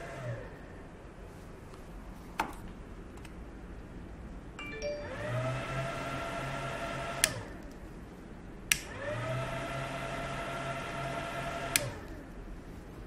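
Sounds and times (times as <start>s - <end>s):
cooling fans whining and humming: 0.0s - 13.0s
rocker switch clicking: 8.7s - 8.9s.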